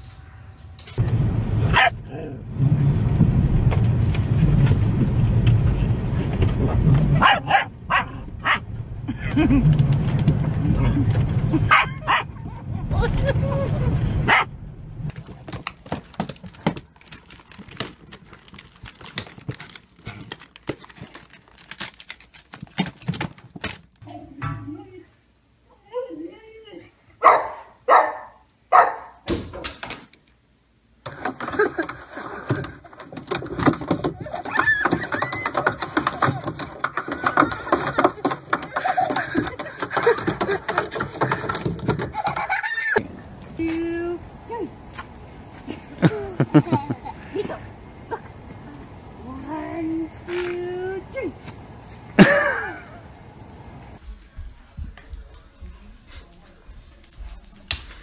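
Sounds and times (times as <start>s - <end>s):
dense noisy rustle: 0.0s - 11.8s, 12.4s - 23.8s, 43.0s - 54.2s
car low rumble: 1.0s - 16.6s
dog yapping: 1.7s - 2.0s, 7.1s - 8.6s, 11.7s - 12.4s, 14.3s - 14.5s.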